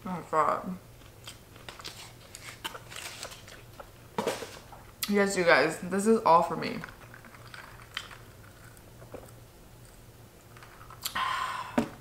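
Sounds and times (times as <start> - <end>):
chewing and mouth sounds: 6.9 - 11.2.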